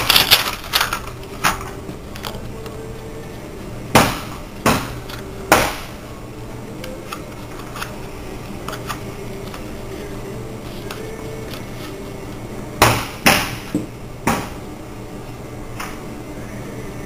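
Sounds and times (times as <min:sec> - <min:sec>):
paper clicks and rustles: 0:00.0 - 0:03.0
steady low hum: 0:00.0 - 0:17.0.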